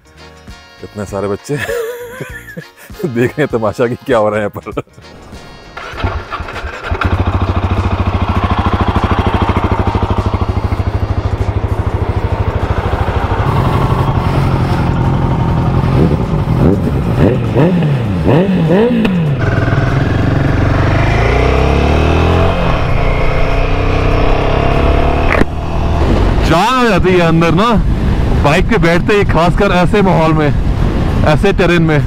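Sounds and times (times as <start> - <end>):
motorcycle engine idling and revving: 5.6 - 28.5.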